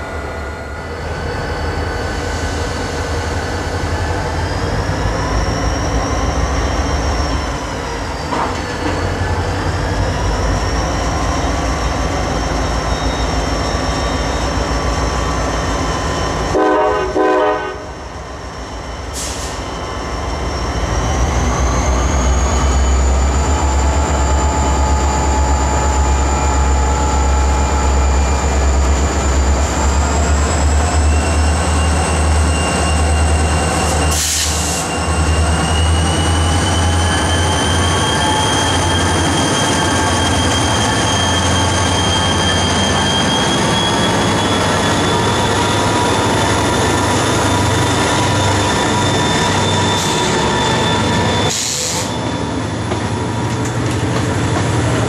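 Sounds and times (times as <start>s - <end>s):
diesel locomotive engine rumble: 0.0s - 55.0s
train horn blast: 16.5s - 17.9s.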